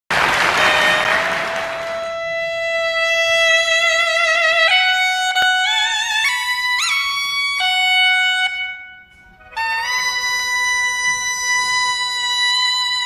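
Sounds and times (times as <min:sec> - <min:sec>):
applause: 0:00.1 - 0:02.3
double-reed horn long note: 0:00.2 - 0:03.0.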